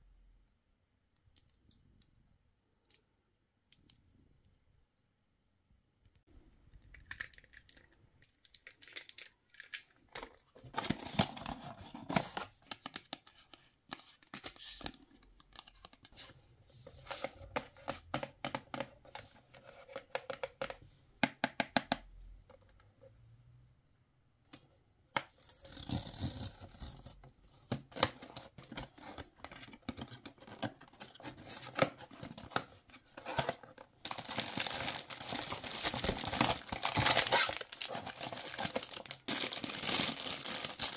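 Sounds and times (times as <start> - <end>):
cardboard rustling: 28.6 - 40.9
foil wrapping crinkling: 34.1 - 40.9.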